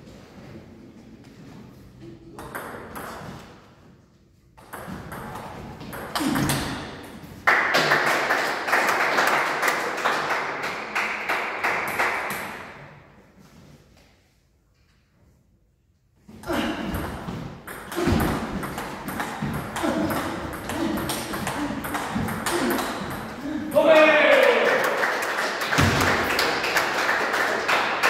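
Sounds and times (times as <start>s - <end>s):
table tennis ball hits: 2.4s - 3.6s, 4.6s - 8.0s, 16.9s - 23.4s, 25.8s - 26.6s.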